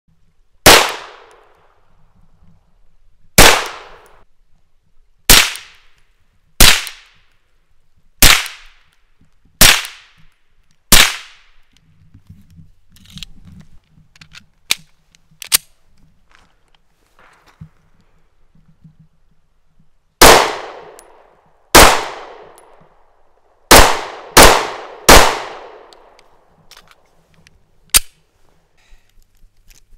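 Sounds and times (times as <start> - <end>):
pistol shots: 0.6 - 1.4, 3.4 - 4.2, 10.9 - 11.4, 20.2 - 21.0, 21.7 - 22.6, 23.7 - 25.9
metallic clicks of pistol handling: 14.1 - 15.8, 25.9 - 28.2.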